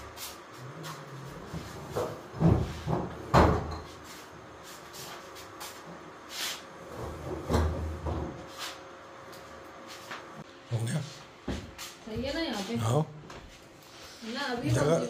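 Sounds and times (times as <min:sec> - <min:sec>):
cupboard doors opening and shutting: 0:01.6 - 0:03.8.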